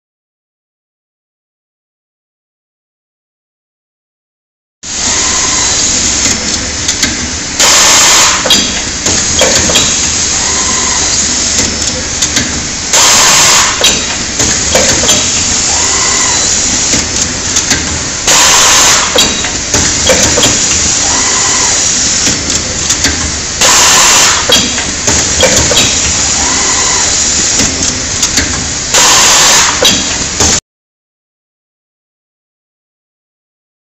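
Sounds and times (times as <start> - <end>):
compressed air exhaust blast: 4.9 - 30.6
steady machine running: 4.9 - 30.6.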